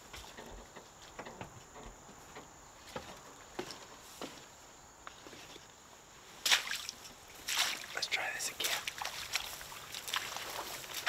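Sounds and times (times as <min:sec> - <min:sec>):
footsteps crunching in dry grass: 0:02.2 - 0:11.0.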